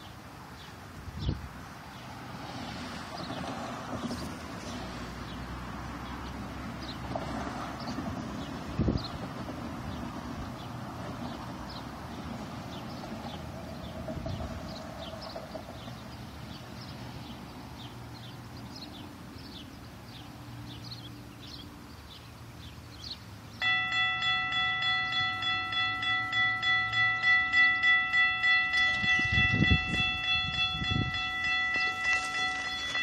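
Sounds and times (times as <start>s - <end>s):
faint background traffic: 0.0s - 33.0s
railroad crossing warning bell: 23.6s - 33.0s.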